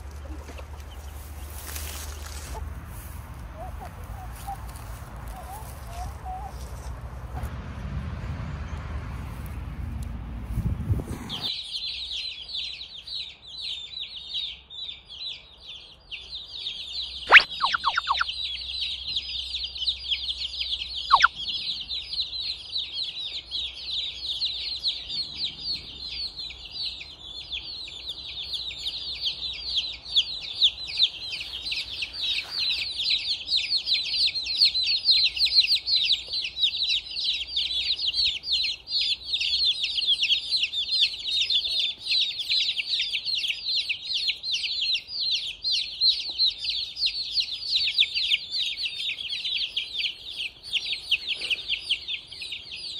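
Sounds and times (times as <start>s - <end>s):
chicks peeping: 0.0s - 6.9s, 11.1s - 52.9s
whistle gliding down in pitch: 17.3s - 18.2s.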